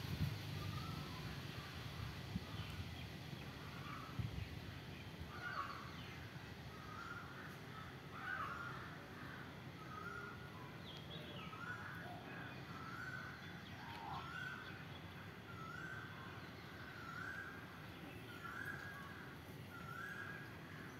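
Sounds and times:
birds calling: 5.0s - 20.9s.

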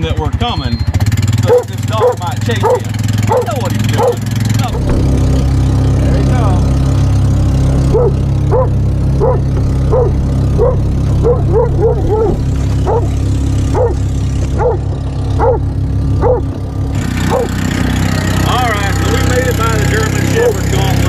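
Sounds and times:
vehicle engine running: 0.0s - 21.0s
dog barking: 1.4s - 4.3s, 7.9s - 16.5s, 17.2s - 17.6s.

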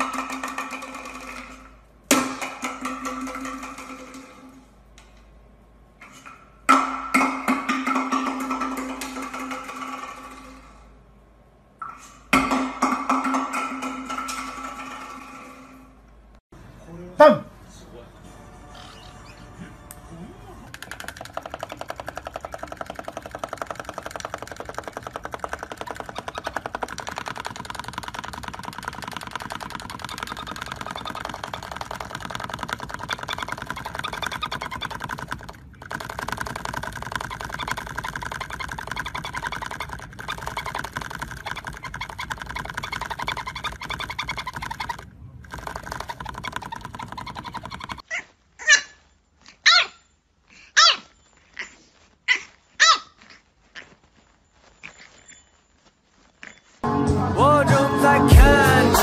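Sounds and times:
parrot buzzing chatter: 20.7s - 48.9s
puppy yipping: 30.0s - 35.3s, 37.0s - 45.1s, 45.7s - 56.8s.

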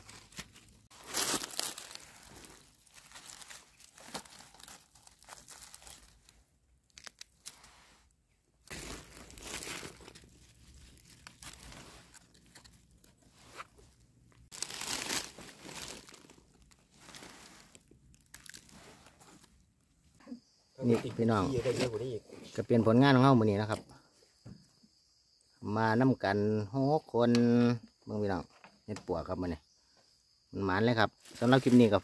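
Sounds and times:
dry leaves crackling and rustling: 0.0s - 7.7s, 8.6s - 12.8s, 14.5s - 19.5s, 31.2s - 32.0s.

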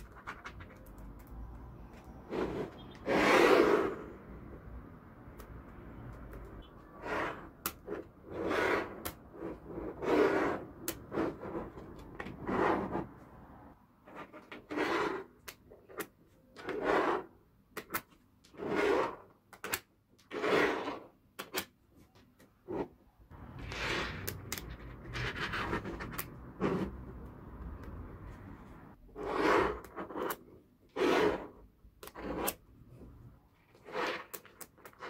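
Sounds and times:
magnetic balls scraping on table: 1.9s - 4.2s, 6.7s - 13.2s, 14.0s - 17.4s, 18.5s - 19.3s, 20.2s - 21.2s, 22.6s - 27.3s, 29.0s - 35.0s.

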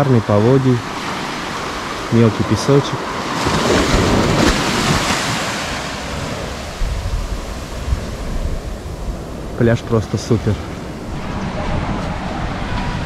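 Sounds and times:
sea surf washing onto beach: 0.0s - 13.0s
wind buffeting microphone: 3.0s - 13.0s.

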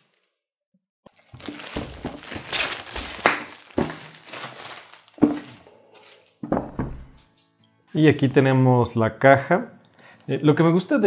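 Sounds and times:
plastic wrap tearing and crinkling: 1.1s - 6.2s
box knocking: 3.6s - 4.1s, 5.2s - 5.6s.

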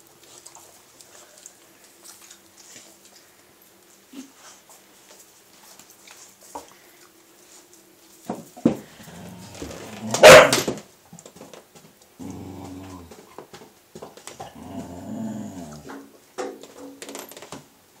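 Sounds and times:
dog growling: 8.9s - 10.2s, 12.2s - 13.2s, 14.4s - 16.0s
dog barking: 10.1s - 10.7s.

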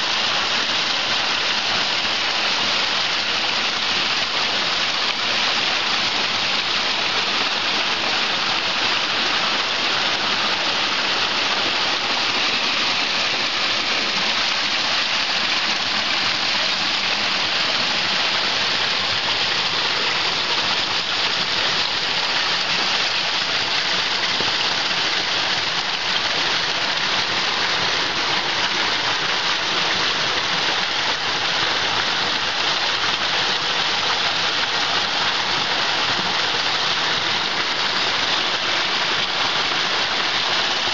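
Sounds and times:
stream water rushing over boulders: 0.0s - 40.9s.

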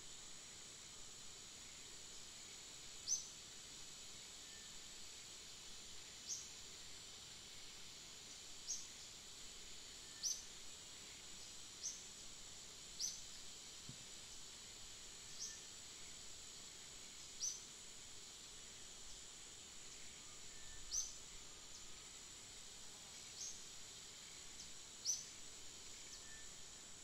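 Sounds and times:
high-pitched insect drone: 14.6s - 27.0s.

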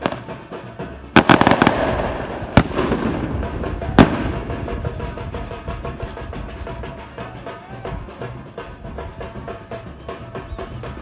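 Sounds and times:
background music with steady beat: 0.0s - 11.0s
sharp loud bangs: 1.1s - 5.9s.

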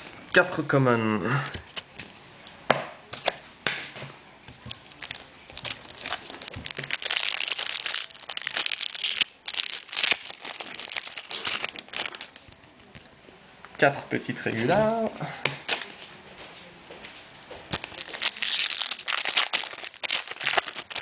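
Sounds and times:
foil pack crinkling and tearing: 4.9s - 12.5s, 17.7s - 21.0s.

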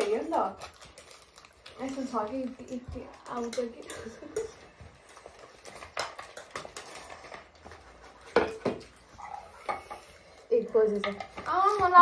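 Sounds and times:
cutlery clicking on plates: 3.4s - 4.6s.

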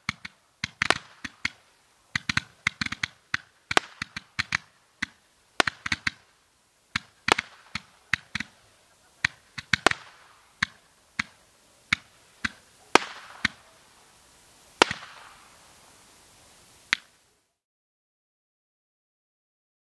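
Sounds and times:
roman candle popping: 0.0s - 17.2s
short hiss: 0.0s - 17.6s.

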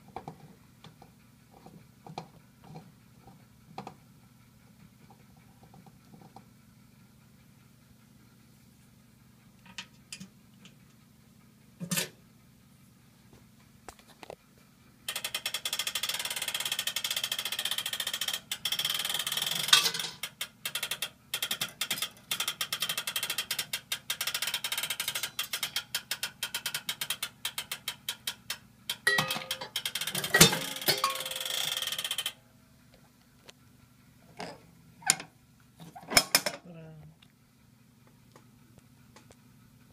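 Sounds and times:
crane machine ratcheting clatter: 15.1s - 32.4s.

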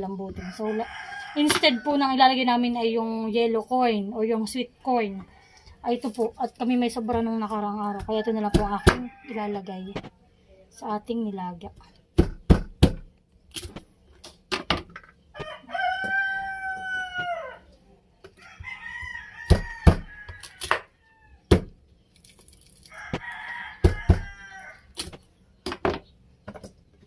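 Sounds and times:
rooster crowing: 0.3s - 2.1s, 7.9s - 10.0s, 15.3s - 17.7s, 18.4s - 21.5s, 22.9s - 24.9s
knife chopping on wooden board: 8.0s - 9.1s, 19.5s - 20.9s, 21.5s - 21.8s, 23.8s - 24.3s.

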